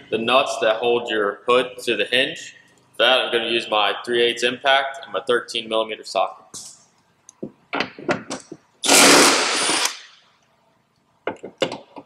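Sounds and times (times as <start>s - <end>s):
impact wrench hammering: 7.8s - 10.1s.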